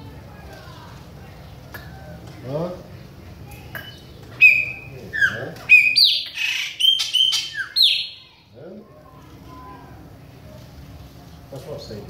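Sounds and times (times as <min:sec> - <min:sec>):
blackbird whistling song: 0:03.8 - 0:08.3.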